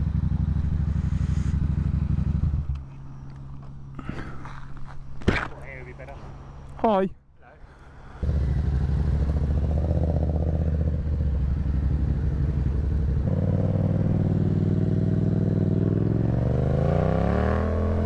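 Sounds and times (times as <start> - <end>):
motorcycle engine idling: 0.0 - 4.3, 8.0 - 16.4.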